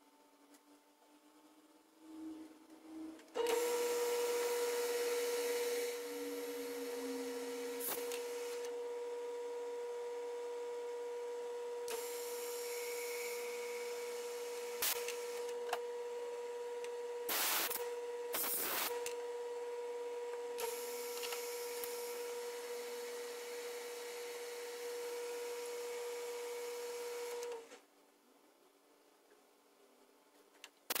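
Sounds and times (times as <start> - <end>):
lathe spindle humming: 2.1 - 17.0.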